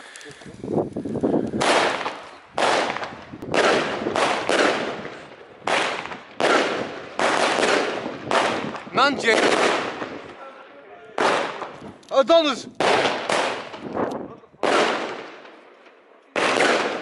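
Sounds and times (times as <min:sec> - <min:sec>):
crackle of bursting shells: 0:00.0 - 0:10.4
firework shots: 0:00.0 - 0:10.4, 0:11.2 - 0:17.0.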